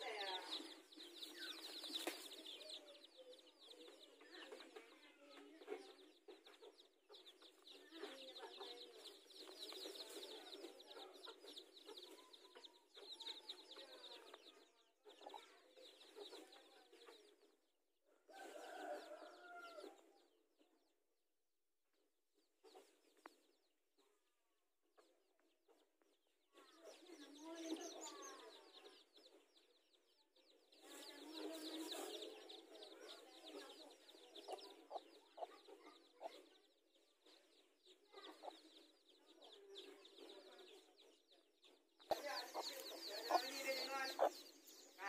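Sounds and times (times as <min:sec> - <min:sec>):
chicks peeping: 0:00.0 - 0:17.6, 0:22.4 - 0:24.2, 0:25.0 - 0:45.0
hen clucking: 0:33.9 - 0:35.6, 0:42.0 - 0:44.5.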